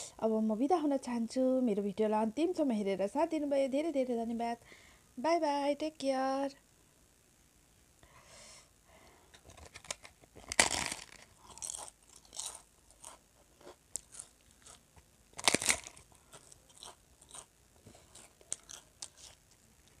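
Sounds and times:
chewing crunches: 0:09.4 - 0:20.0
crisp papad crunching bites: 0:09.4 - 0:20.0.

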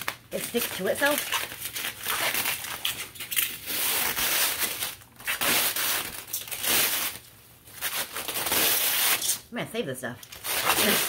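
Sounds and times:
bubble wrap crinkling: 0:00.0 - 0:09.5, 0:10.2 - 0:11.0.

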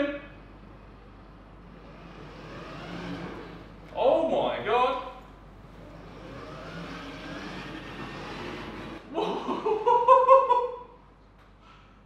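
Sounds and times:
motorised wheels rolling on tiles: 0:01.6 - 0:04.0, 0:05.2 - 0:09.1.

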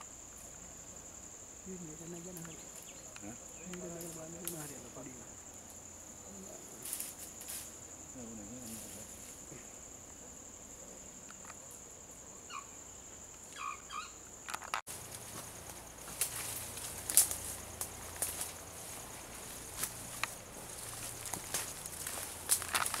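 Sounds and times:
high-pitched insect drone: 0:00.0 - 0:23.0.

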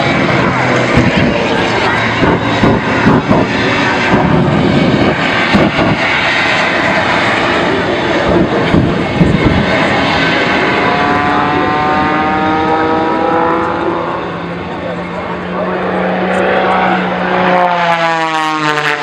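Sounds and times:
loud jet roar: 0:00.0 - 0:19.0
multi-tone whine: 0:00.0 - 0:19.0.

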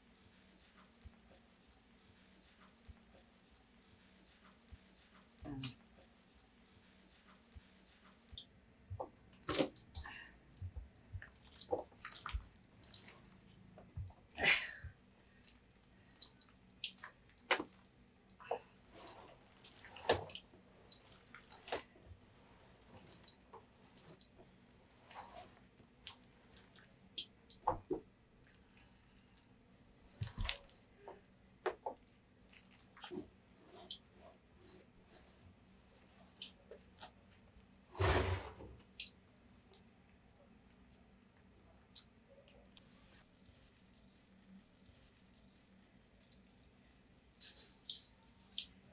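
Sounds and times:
gloved hands squelching wet vegetables: 0:00.0 - 0:29.3, 0:30.0 - 0:37.6.

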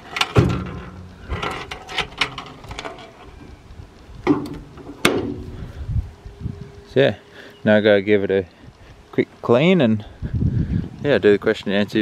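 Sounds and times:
metal clicks and knocks: 0:00.0 - 0:05.5.

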